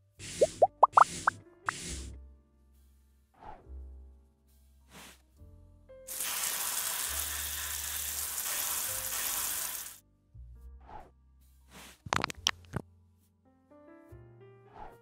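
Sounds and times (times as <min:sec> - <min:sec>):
soft background music: 0:00.1 - 0:15.0
dental water spray hissing: 0:06.1 - 0:10.0.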